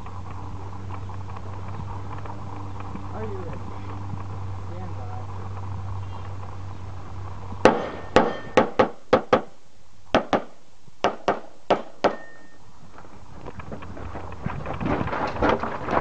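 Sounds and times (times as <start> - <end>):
pistol shots: 7.6 - 9.5.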